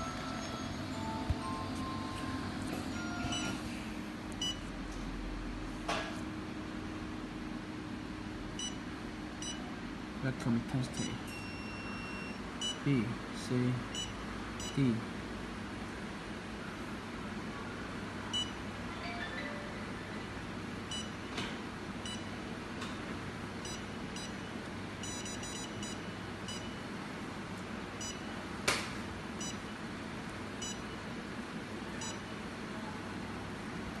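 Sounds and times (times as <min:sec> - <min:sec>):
control panel beeps: 0:04.4 - 0:04.6, 0:09.4 - 0:09.6, 0:11.0 - 0:12.8, 0:13.9 - 0:14.9, 0:18.3 - 0:18.6, 0:20.9 - 0:21.2, 0:23.6 - 0:24.4, 0:25.0 - 0:26.9, 0:28.0 - 0:28.3, 0:29.4 - 0:29.7, 0:30.6 - 0:31.0, 0:32.0 - 0:32.3.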